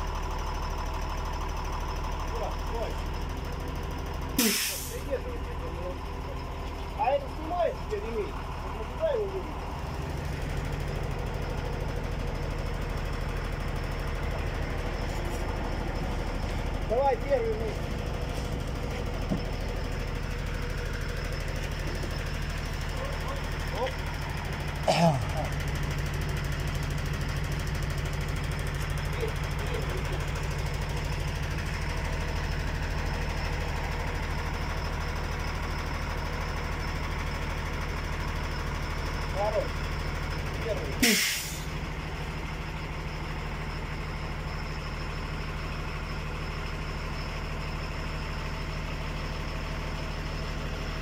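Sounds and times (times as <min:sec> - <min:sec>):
engine idling: 0:00.0 - 0:51.0.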